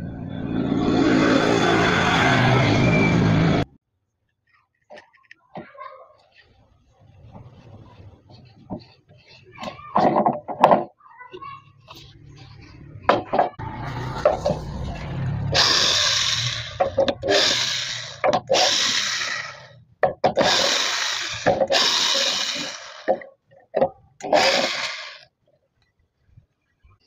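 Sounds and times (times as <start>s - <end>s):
cordless drill short bursts: 15.6s - 19.7s, 20.4s - 23.1s, 24.3s - 25.2s.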